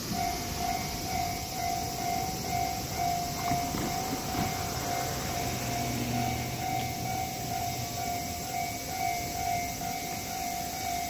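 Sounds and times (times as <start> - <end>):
level crossing warning bell: 0.0 - 11.0
street traffic noise: 0.0 - 11.0
vehicle engine passing: 2.7 - 8.6.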